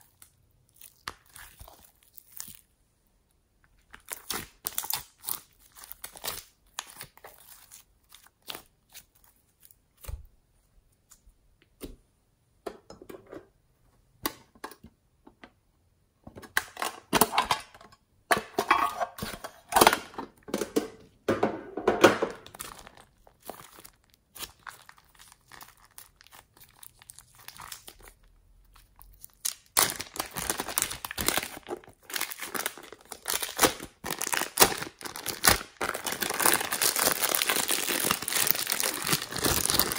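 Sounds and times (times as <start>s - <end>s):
slime clicking and crackling: 0.0s - 2.7s, 22.4s - 39.9s
plastic bag crinkling: 22.3s - 39.9s.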